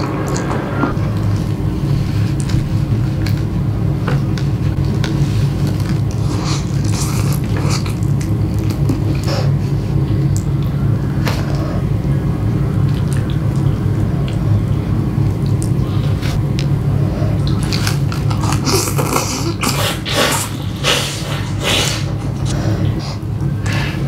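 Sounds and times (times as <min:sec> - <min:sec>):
steady low hum: 0:00.0 - 0:24.0
noodles slurped and chewed: 0:17.3 - 0:22.6.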